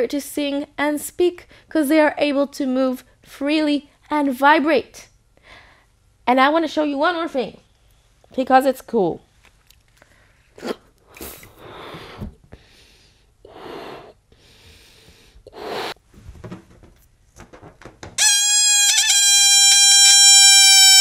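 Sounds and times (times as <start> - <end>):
breath puffs blowing up balloon: 15.5 - 16.0
balloon neck squealing: 18.1 - 21.0.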